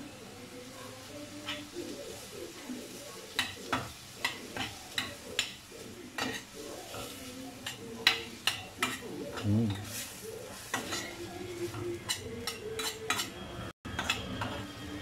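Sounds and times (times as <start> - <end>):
light sizzle: 0.0 - 15.0
metal spoon scraping a pan: 3.2 - 14.8.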